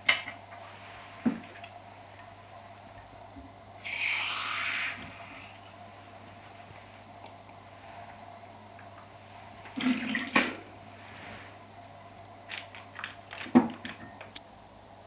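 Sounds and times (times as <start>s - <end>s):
water splashing into sink: 9.8s - 10.6s.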